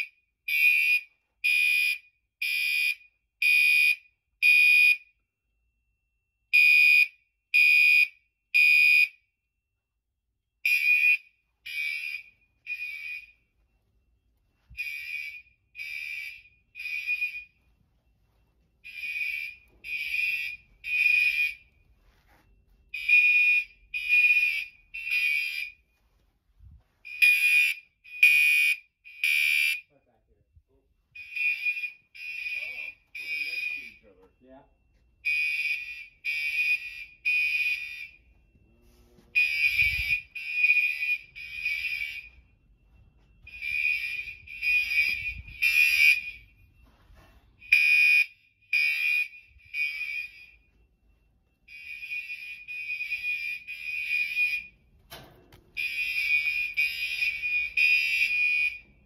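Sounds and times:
fire alarm horn blasts: 0.0s - 9.6s, 10.6s - 59.0s.

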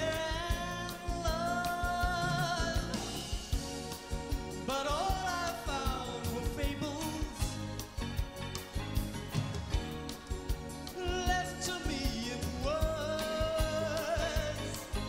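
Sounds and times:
pop band playing: 0.0s - 15.0s.

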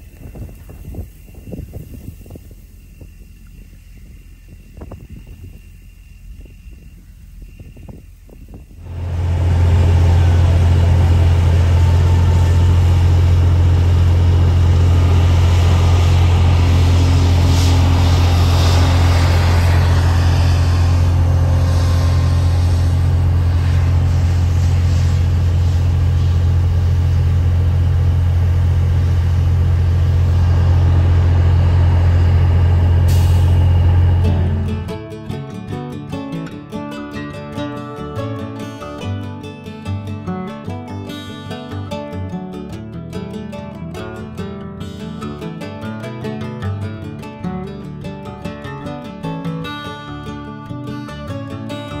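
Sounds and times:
truck engine droning from cab: 0.0s - 35.4s.

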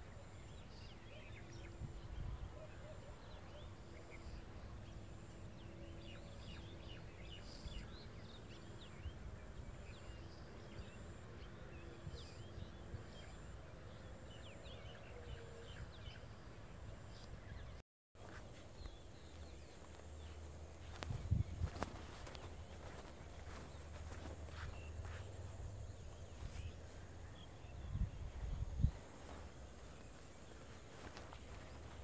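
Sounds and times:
small birds chirping: 0.3s - 32.0s
low wind rumble on microphone: 1.5s - 2.6s, 6.0s - 13.4s, 20.2s - 32.0s.

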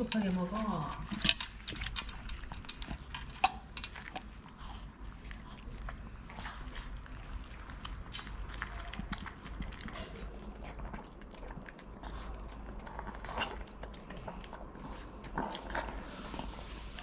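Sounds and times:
small clicks on glass bowls: 0.0s - 4.2s
dogs chewing and lapping: 0.0s - 17.0s.

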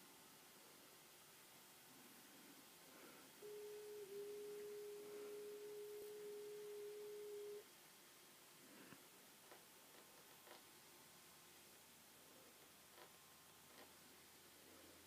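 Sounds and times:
tape hiss: 0.0s - 15.0s
faint electronic tone: 3.0s - 7.7s.

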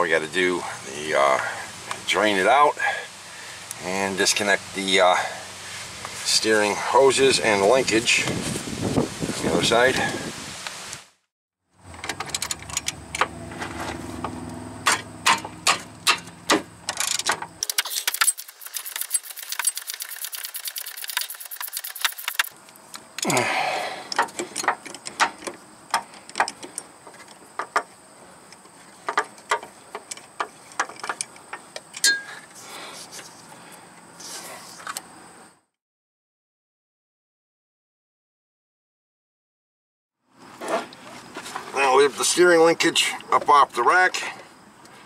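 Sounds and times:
metal clinks and knocks: 11.9s - 14.3s, 14.9s - 22.5s, 24.1s - 27.9s, 28.5s - 32.5s
socket ratchet clicking: 16.9s - 22.5s.

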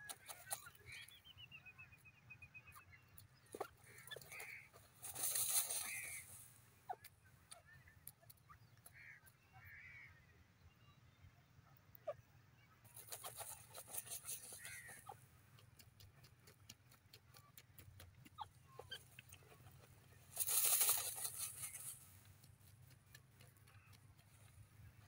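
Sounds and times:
bird dust-bathing in sand: 3.6s - 6.6s, 12.9s - 15.2s, 18.9s - 22.3s.

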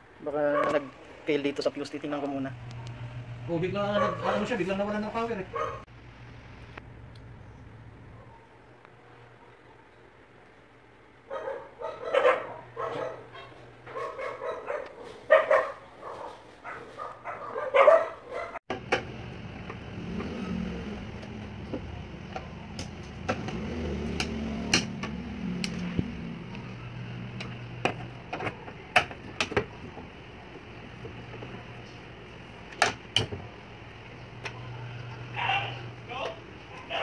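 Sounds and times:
dog barking: 0.5s - 0.9s, 3.8s - 4.6s, 5.5s - 5.9s, 11.3s - 18.6s, 36.7s - 37.0s.

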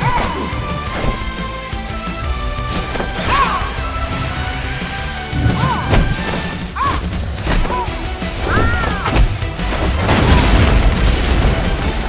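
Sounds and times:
dramatic fight music: 0.0s - 12.0s
booms and crashing rock: 8.4s - 12.0s
rumbling debris: 9.2s - 12.0s.

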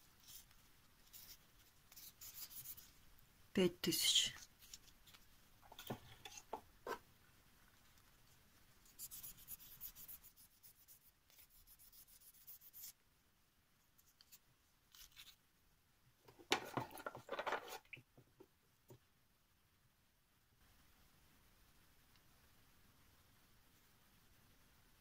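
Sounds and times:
sandpaper rubbing: 0.2s - 2.9s, 8.9s - 13.0s.

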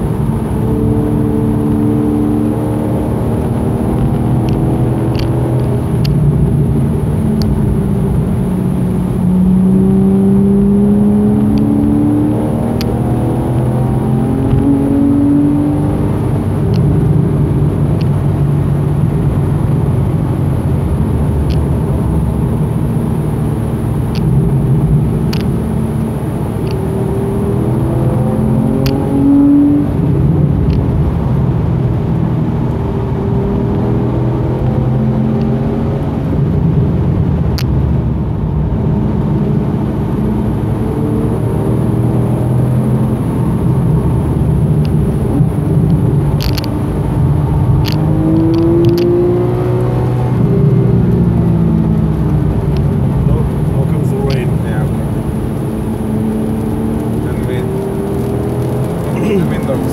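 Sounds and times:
car engine from inside cabin: 0.0s - 59.9s
tyre and road noise: 0.0s - 59.9s.

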